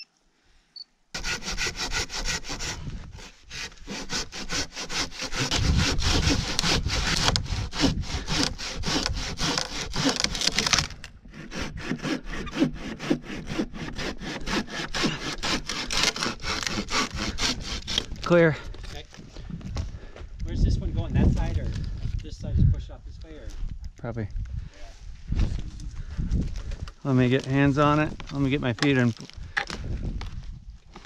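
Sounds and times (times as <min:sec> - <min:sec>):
crosscut saw rasping through wood: 0:01.2 - 0:19.1.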